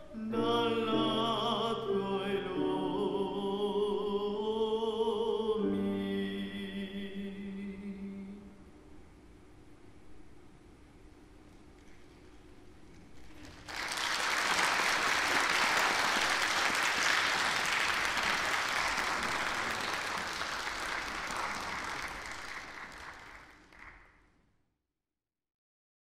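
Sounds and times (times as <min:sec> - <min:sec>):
audience applause: 0:13.2 - 0:24.2.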